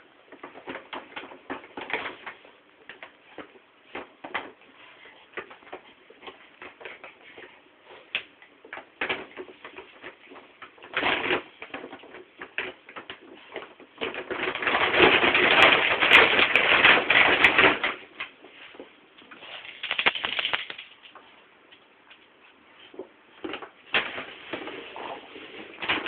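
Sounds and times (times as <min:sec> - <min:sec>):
plastic bag crinkling and rustling: 0:08.7 - 0:21.1.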